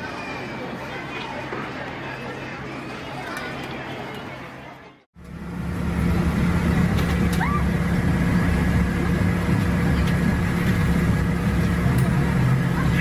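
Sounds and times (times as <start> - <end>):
ice-shaving machine motor hum: 5.2 - 13.0.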